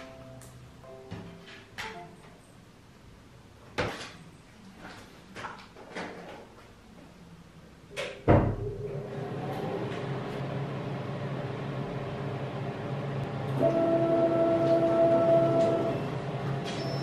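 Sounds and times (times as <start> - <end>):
machine humming: 8.6 - 17.0.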